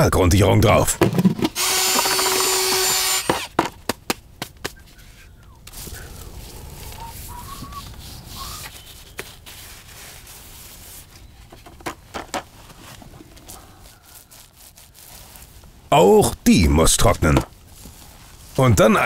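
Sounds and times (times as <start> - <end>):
faint chirps: 4.8 - 9.1
paintbrush scrubbing rough wall: 5.7 - 11.4, 12.8 - 15.6.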